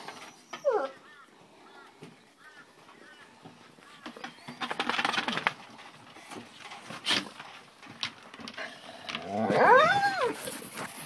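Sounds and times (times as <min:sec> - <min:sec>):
puppies scuffling on wooden deck: 0:03.4 - 0:11.0.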